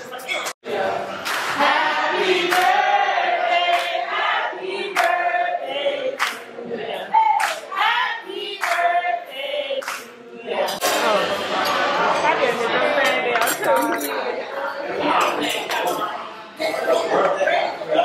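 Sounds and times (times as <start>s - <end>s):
group singing long notes: 0.6s - 13.5s
sharp hand claps: 1.2s - 1.6s, 2.5s - 2.8s, 6.2s - 6.4s, 7.4s - 7.7s, 8.6s - 8.9s, 9.8s - 10.1s.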